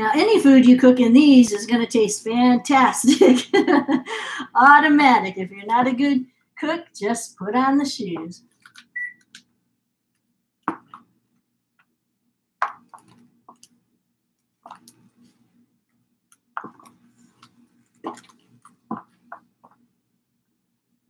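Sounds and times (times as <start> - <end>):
stiletto heels clicking on tiles: 10.7 - 11.1, 16.6 - 17.0, 18.0 - 19.8.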